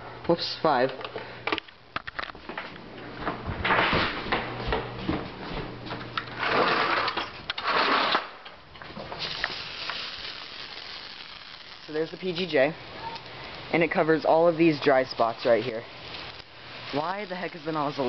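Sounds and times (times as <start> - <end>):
camera handling rustling: 1.5 - 2.4.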